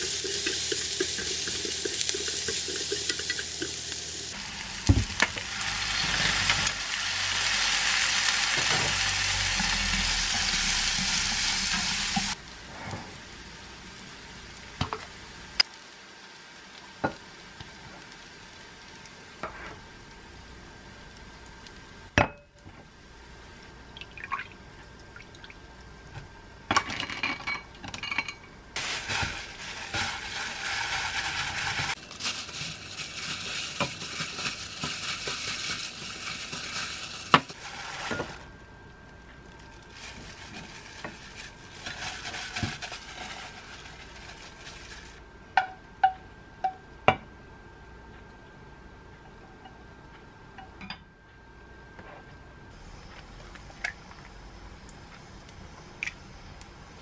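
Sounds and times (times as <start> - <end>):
plastic gloves rustling: 28.8 - 45.2.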